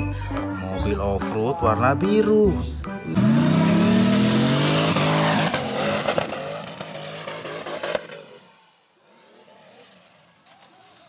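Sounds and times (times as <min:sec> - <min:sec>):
buggy engine revving hard: 0:03.0 - 0:08.5.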